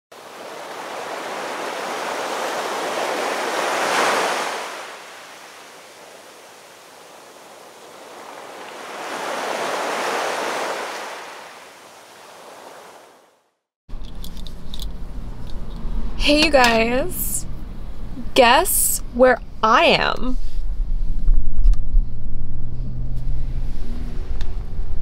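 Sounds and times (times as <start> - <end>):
sea waves washing in: 0.1 - 13.4.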